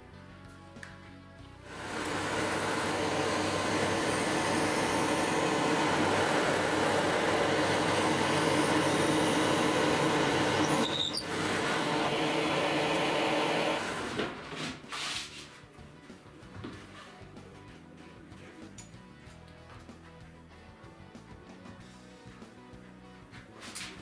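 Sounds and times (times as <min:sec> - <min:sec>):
drill press boring into wood: 0:01.7 - 0:14.8
dust extraction vacuum: 0:01.7 - 0:15.2.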